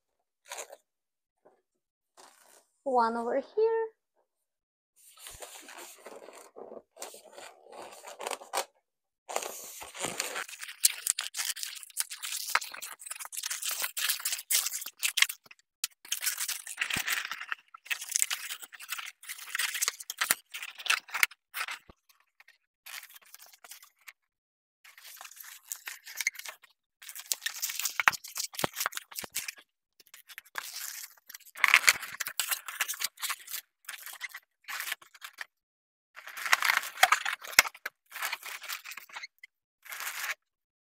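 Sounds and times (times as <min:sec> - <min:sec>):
balloons rubbing and crackling: 0:05.0 - 0:08.6, 0:09.3 - 0:14.9.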